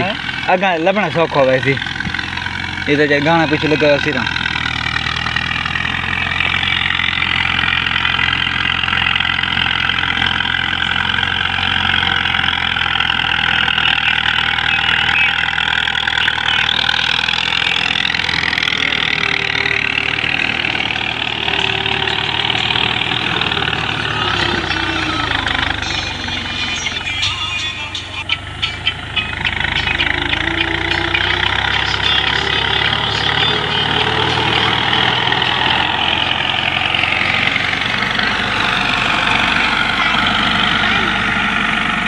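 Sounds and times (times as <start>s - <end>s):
tractor diesel engine running: 0.0s - 42.0s.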